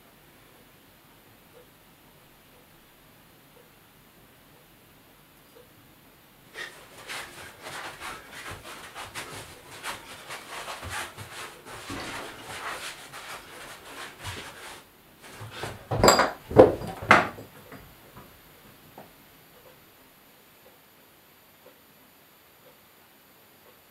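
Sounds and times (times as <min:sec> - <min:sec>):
feet scuffing and rubbing: 0:06.6 - 0:17.9
loud knocks: 0:09.8 - 0:17.8.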